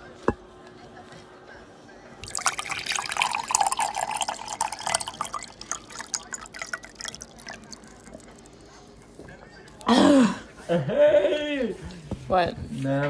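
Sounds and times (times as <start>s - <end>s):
water dripping and splashing: 2.2s - 8.8s.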